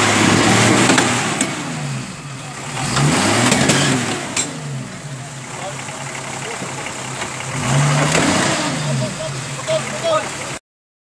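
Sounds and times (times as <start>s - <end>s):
jeep engine revving: 0.0s - 10.6s.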